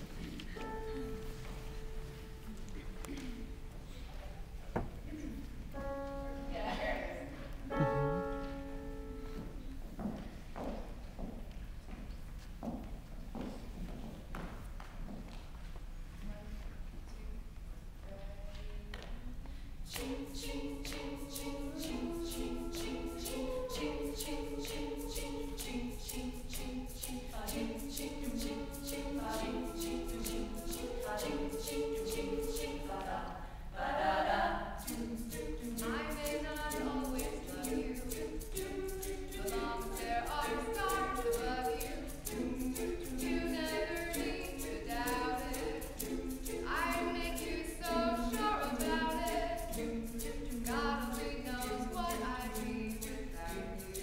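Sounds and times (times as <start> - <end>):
women singing in harmony: 19.9 - 54.0
vocal percussion beat: 34.8 - 54.0.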